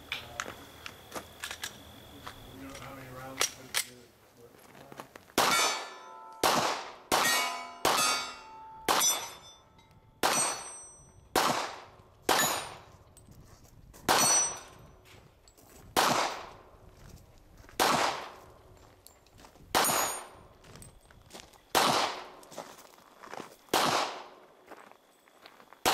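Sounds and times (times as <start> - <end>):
handgun shots: 5.4 - 9.4, 10.2 - 10.8, 21.7 - 22.3, 23.7 - 24.3
steel plate clanging: 5.5 - 6.4, 7.2 - 11.2, 14.2 - 14.8.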